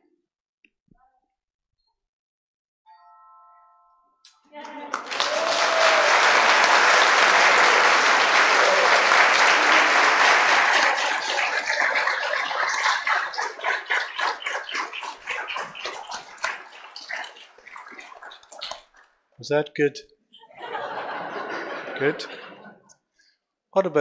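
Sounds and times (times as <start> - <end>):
crowd applauding: 4.6 - 18.8.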